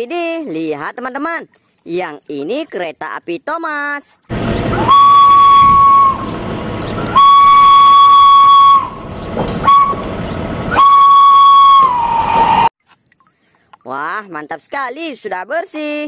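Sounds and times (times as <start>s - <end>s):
steam locomotive whistle: 4.3s - 12.7s
train running noise: 4.3s - 12.7s.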